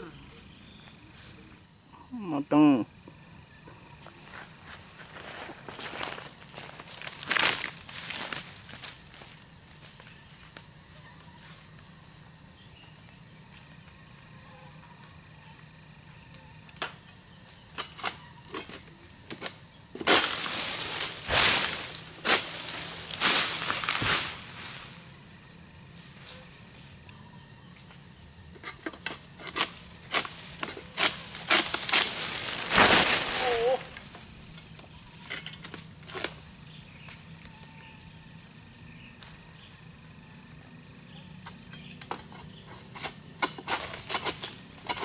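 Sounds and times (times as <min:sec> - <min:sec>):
insects buzzing: 0:00.0 - 0:45.0
scraping rustling bursts: 0:29.6 - 0:34.0.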